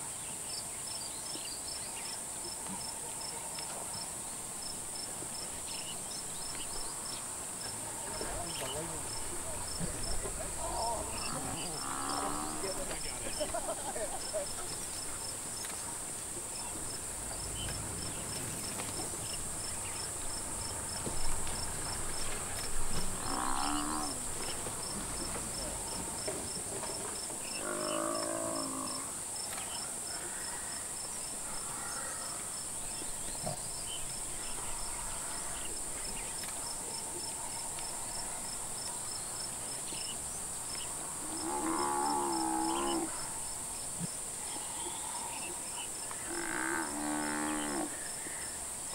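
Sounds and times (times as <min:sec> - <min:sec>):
cricket chirping: 0:00.0 - 0:48.9
high insect buzz: 0:04.0 - 0:48.9
buffalo bellowing in distress: 0:10.5 - 0:12.8, 0:23.1 - 0:24.2, 0:27.6 - 0:29.1, 0:41.2 - 0:43.3.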